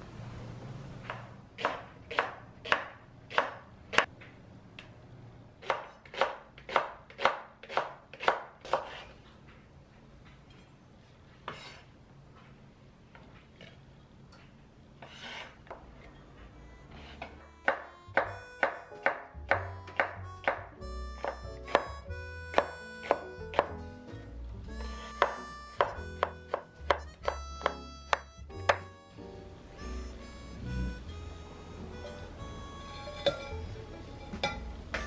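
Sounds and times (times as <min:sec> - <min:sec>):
knife tapping on cutting board: 0:17.7 - 0:21.9, 0:25.2 - 0:28.9.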